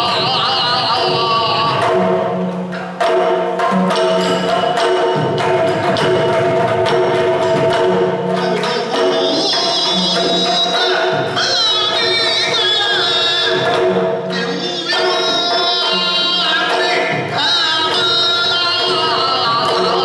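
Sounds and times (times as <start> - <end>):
person singing: 0.0 - 2.3, 8.2 - 20.0
drums playing sharp strokes: 0.0 - 20.0.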